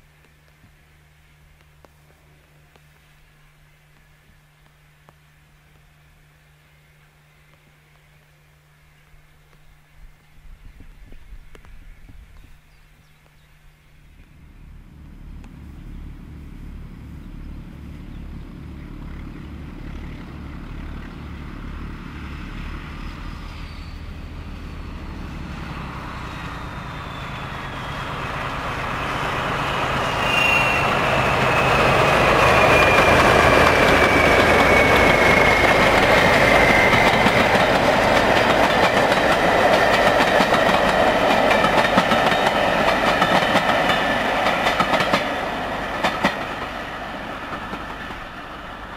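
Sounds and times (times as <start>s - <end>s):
diesel locomotive engine beat: 13.9s - 48.9s
high whine falling in pitch: 26.4s - 38.0s
train wheels clattering on rail joints: 27.7s - 48.8s.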